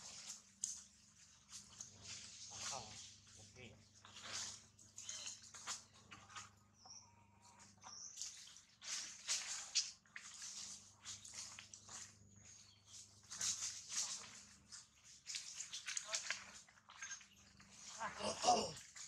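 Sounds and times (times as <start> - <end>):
dry leaves rustling and crackling: 0.0 - 3.4, 8.2 - 16.7.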